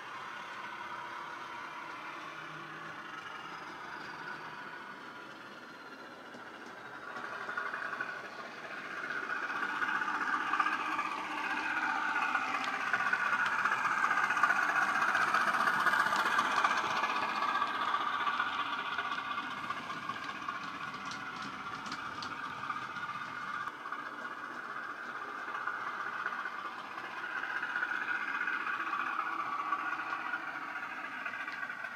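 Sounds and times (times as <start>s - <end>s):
model diesel engine sound: 0.0s - 31.9s.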